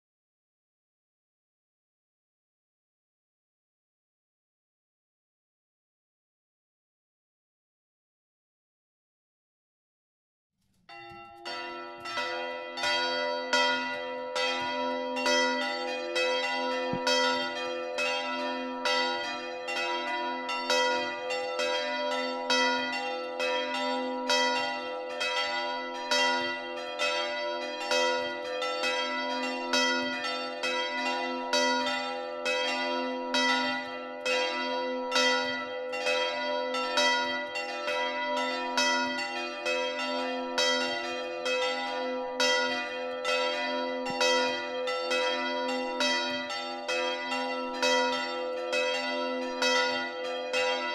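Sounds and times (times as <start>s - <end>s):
church bells pealing: 10.9s - 50.9s.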